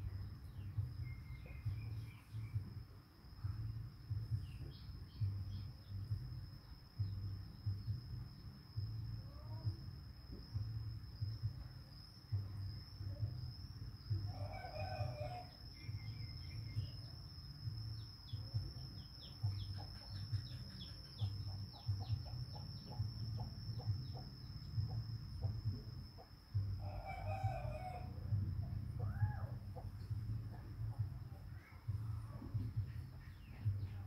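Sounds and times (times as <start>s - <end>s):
steady high-pitched whine: 0.0s - 34.0s
rooster crowing: 14.3s - 15.8s, 26.8s - 28.4s.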